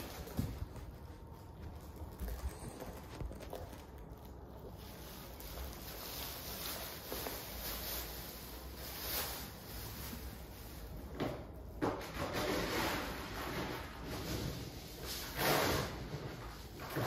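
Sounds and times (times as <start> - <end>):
cat scuffling on hard floor: 0.0 - 8.0.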